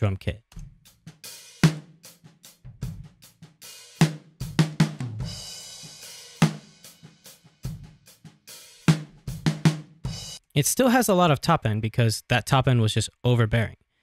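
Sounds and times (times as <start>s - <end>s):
drum hits: 4.0s - 8.0s, 8.8s - 10.4s.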